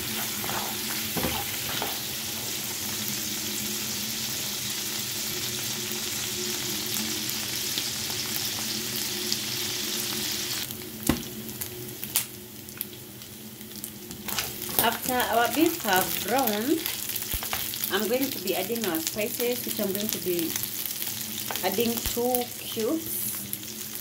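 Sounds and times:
spatula scraping a pan: 0.0 - 2.1
meat sizzling in a frying pan: 0.0 - 24.0.

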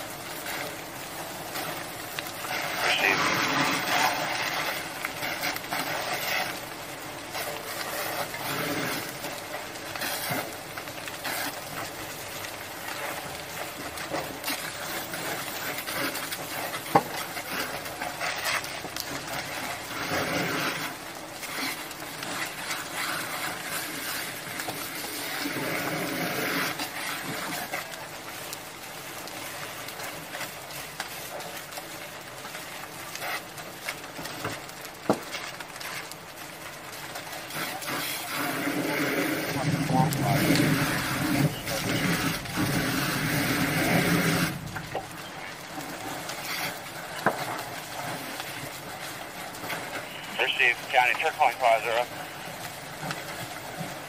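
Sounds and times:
hose spraying water on fire: 0.0 - 54.0
sharp crack: 49.6 - 52.2.

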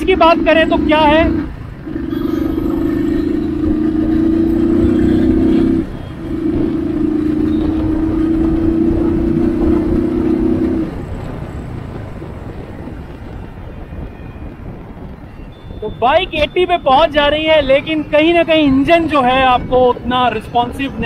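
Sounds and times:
motorcycle engine accelerating: 0.0 - 13.4
wind and road rush: 0.0 - 21.0.

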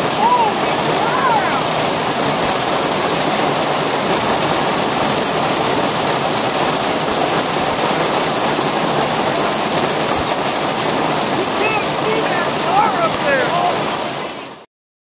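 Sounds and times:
heavy hail falling: 0.0 - 14.4.

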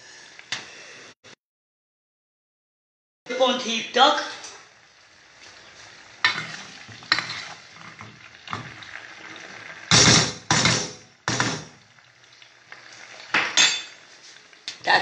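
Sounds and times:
food sizzling in hot oil: 3.4 - 15.0
utensils knocking on pot: 9.9 - 11.8, 13.3 - 14.0.

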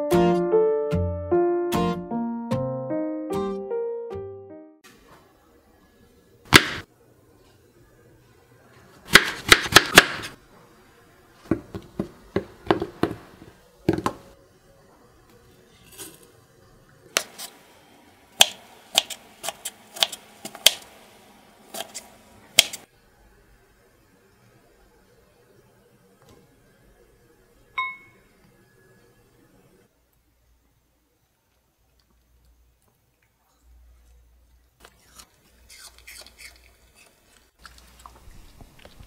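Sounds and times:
knife cutting apple on board: 9.1 - 10.4, 17.1 - 17.6, 18.4 - 20.9, 21.7 - 22.8.

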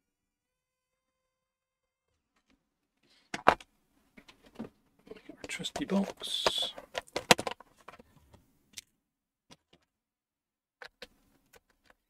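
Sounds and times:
plastic box clicking and clattering: 3.3 - 8.4.

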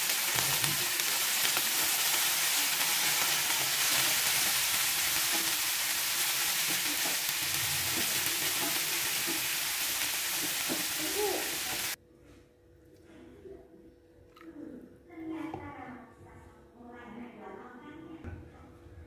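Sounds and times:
spatula stirring vegetables: 0.0 - 12.0
vegetables sizzling in a wok: 0.0 - 12.0.

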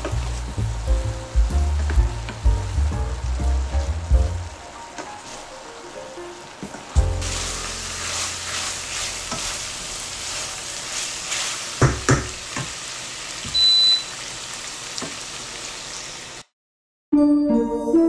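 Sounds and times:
soft piano music: 0.0 - 8.6, 17.1 - 18.0
food sizzling in a pan: 0.0 - 16.4
utensil knocking on pan: 11.8 - 12.8
short high beep: 13.5 - 14.1.

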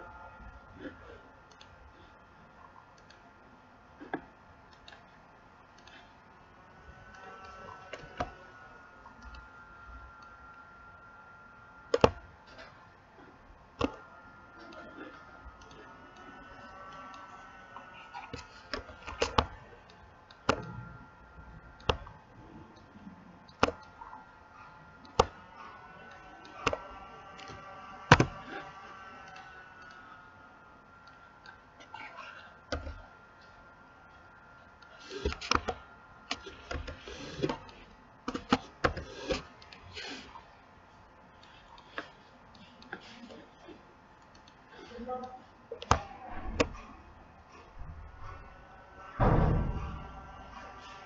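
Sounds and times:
computer mouse clicking: 1.5 - 1.8, 2.7 - 3.2, 4.0 - 5.1, 5.7 - 6.1, 11.9 - 12.2, 15.6 - 20.9, 21.8 - 22.9, 23.5 - 24.0, 25.0 - 25.4, 26.0 - 30.0, 32.7 - 33.0, 34.8 - 40.3.

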